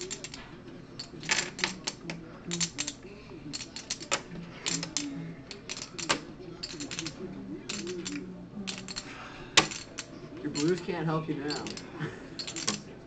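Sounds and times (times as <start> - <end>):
poker chips clicking: 1.0 - 9.0, 11.5 - 11.8, 12.4 - 12.9.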